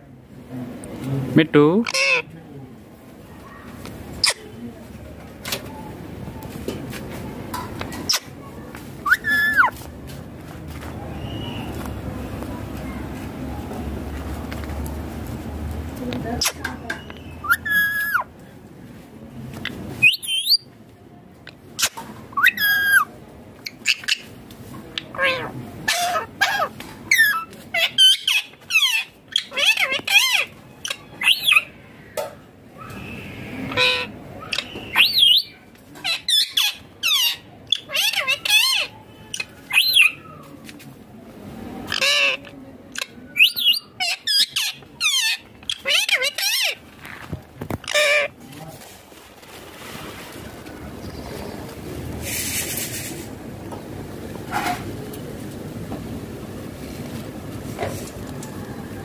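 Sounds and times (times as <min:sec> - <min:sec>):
parakeet squawking: 0:01.8 - 0:02.3, 0:09.0 - 0:09.7, 0:17.2 - 0:18.3, 0:25.0 - 0:31.7, 0:33.7 - 0:40.2, 0:41.9 - 0:46.8, 0:47.8 - 0:48.4.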